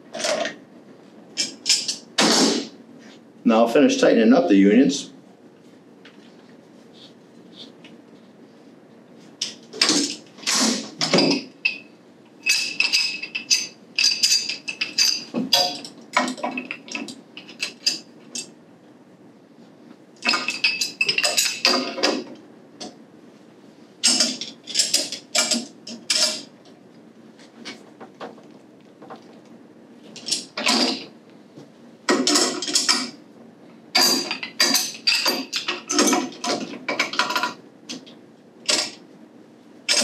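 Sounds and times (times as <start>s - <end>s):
pipe wrench clinking and scraping: 11.0s - 18.5s, 20.2s - 22.2s, 34.0s - 37.6s.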